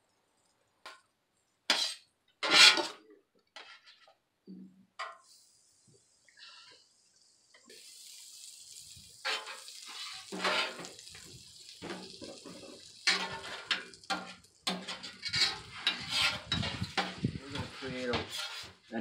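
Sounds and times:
butter sizzling on a griddle: 0:01.7 - 0:03.0, 0:05.0 - 0:18.8
metal spatulas scraping griddle: 0:01.7 - 0:03.0, 0:03.6 - 0:04.1, 0:09.2 - 0:11.0, 0:11.8 - 0:18.9.

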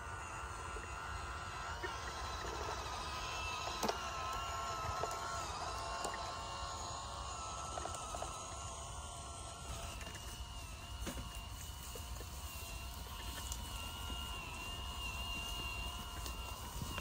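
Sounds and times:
small motor whining: 0:00.0 - 0:17.0.

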